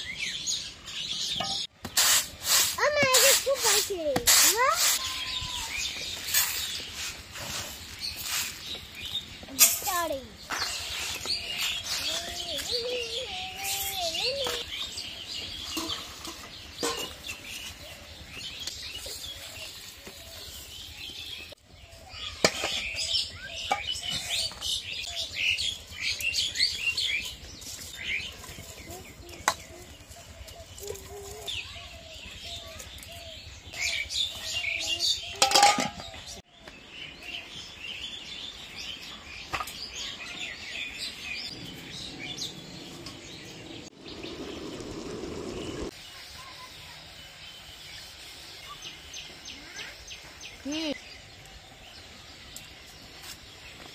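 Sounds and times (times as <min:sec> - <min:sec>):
small birds chirping: 0:00.0 - 0:53.9
steel pots clanking: 0:15.6 - 0:17.5, 0:35.3 - 0:36.2.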